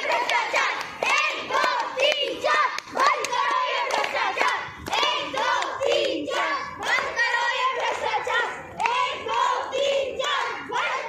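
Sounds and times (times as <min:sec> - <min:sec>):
hands clapping: 0:00.0 - 0:09.5
children chanting in unison: 0:00.0 - 0:11.0.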